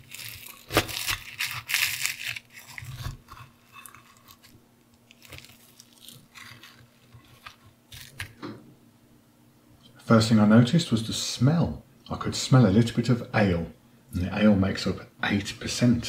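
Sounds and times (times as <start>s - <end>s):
knife and fork cutting crisp crust: 0.0s - 4.5s.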